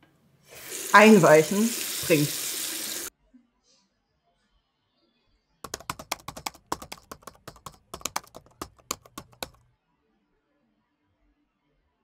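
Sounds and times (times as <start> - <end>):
fast typing on laptop keyboard: 5.6 - 9.6.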